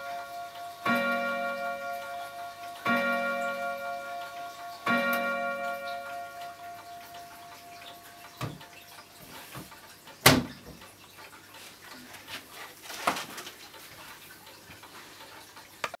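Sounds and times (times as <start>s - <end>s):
clock chime note: 0.0s - 9.0s
clock door knocks and clicks: 7.5s - 8.8s.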